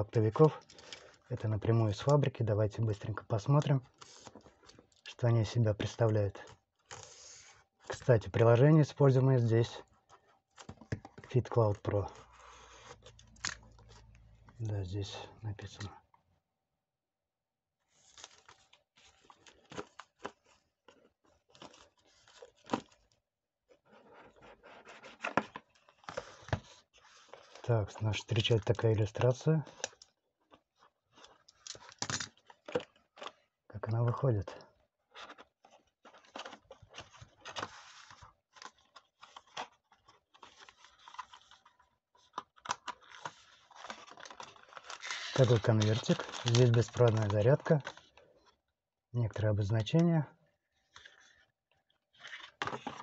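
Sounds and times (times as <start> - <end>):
plastic film crinkling and tearing: 17.9 - 23.1, 28.3 - 33.4, 35.2 - 48.4
paper rustling and scraping: 23.7 - 27.7, 35.2 - 48.2.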